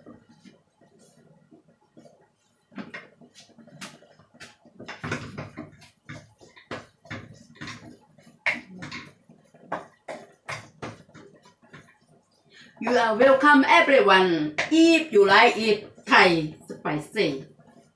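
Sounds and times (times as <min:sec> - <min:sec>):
wooden spatula scraping a pan: 0:00.1 - 0:12.0.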